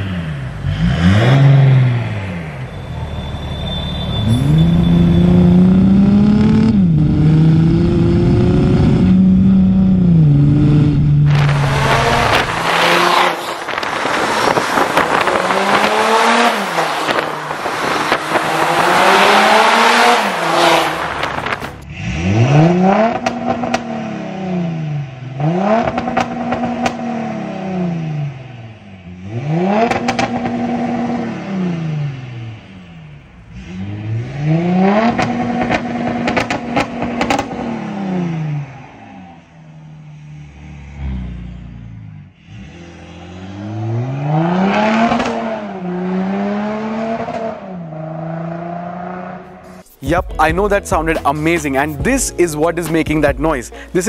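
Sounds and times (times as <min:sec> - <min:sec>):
diesel car exhaust revving: 0:00.0 - 0:49.8
exhaust crackles: 0:04.3 - 0:23.9.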